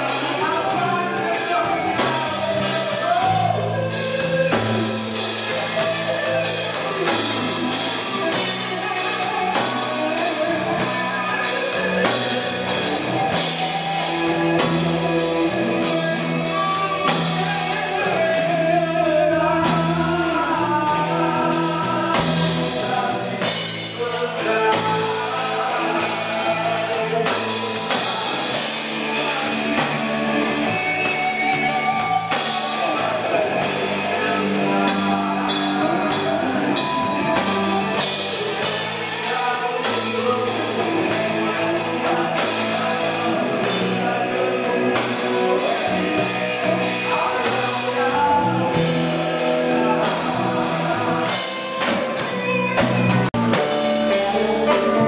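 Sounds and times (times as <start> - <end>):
drum kit beat: 0.0 - 55.0
electric bass: 0.0 - 55.0
electric guitars: 0.0 - 55.0.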